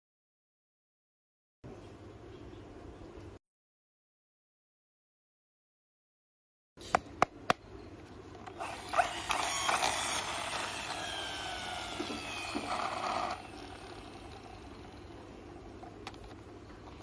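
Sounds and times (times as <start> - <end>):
toy wheel and gears whirring: 8.6 - 16.4.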